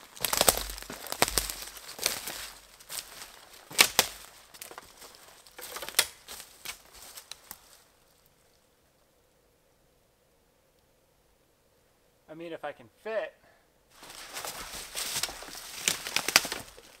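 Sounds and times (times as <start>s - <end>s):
footsteps crunching dry leaves: 0.0s - 8.3s, 13.9s - 17.0s
twigs snapping: 0.0s - 8.3s, 14.0s - 17.0s.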